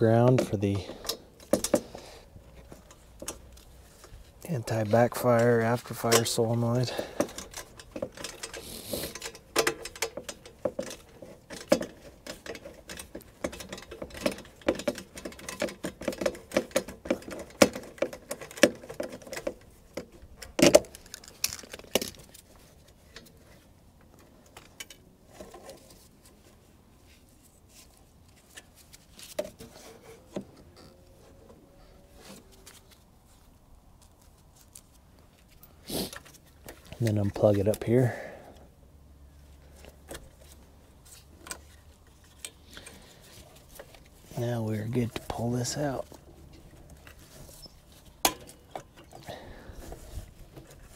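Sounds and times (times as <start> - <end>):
metallic clicks and rattles: 5.4 - 23.3.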